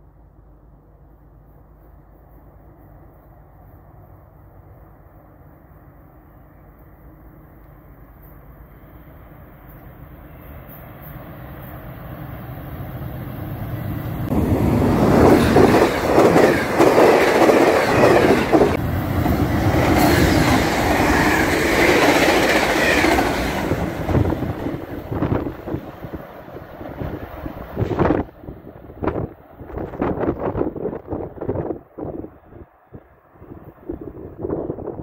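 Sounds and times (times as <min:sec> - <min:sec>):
diesel train rumble: 0:00.0 - 0:35.0
rush of passing rail cars: 0:00.0 - 0:35.0
train wheels clattering on rails: 0:14.3 - 0:28.3.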